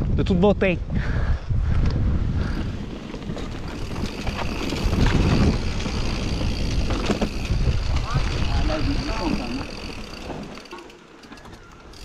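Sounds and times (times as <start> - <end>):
wind buffeting microphone: 0.0 - 10.5
bike rattling and knocking: 2.4 - 12.0.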